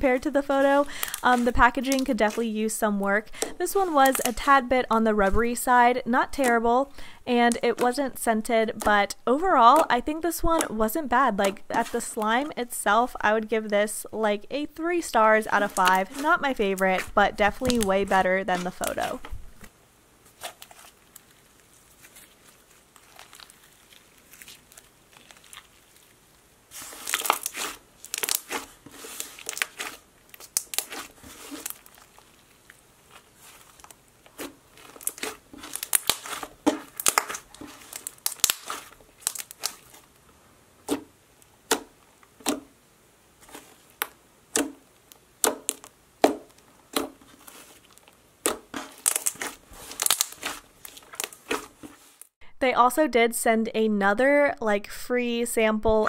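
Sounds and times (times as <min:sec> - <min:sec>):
slime sticky pops and crackles: 0:26.9 - 0:28.6, 0:29.2 - 0:32.1, 0:33.7 - 0:40.0, 0:45.4 - 0:47.1, 0:48.4 - 0:51.6.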